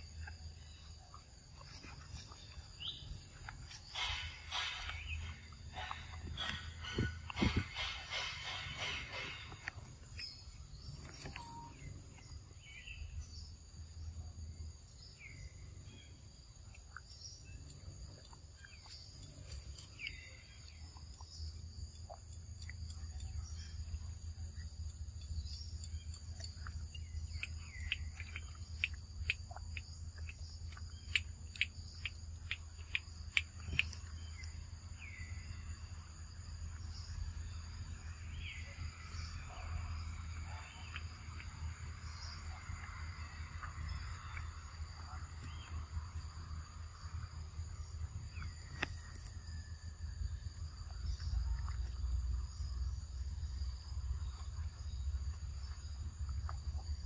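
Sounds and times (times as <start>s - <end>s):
bird chirps: 0.0s - 52.8s.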